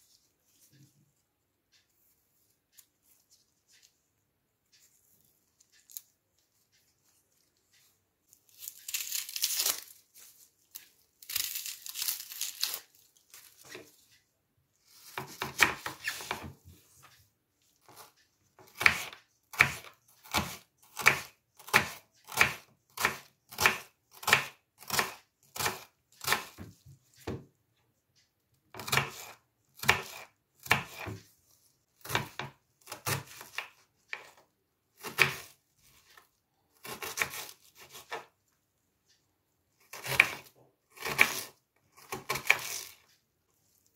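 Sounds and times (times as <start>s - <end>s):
onion skin tearing: 8.5s - 13.7s
knife chopping on wooden board: 15.0s - 16.5s, 18.7s - 27.4s, 28.7s - 31.2s, 32.0s - 34.2s, 35.0s - 35.5s, 36.8s - 38.2s, 39.9s - 42.9s.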